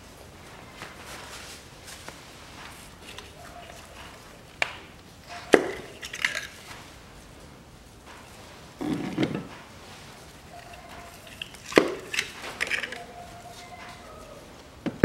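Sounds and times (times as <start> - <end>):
ignition coils clicking: 3.0 - 6.7, 10.5 - 13.1.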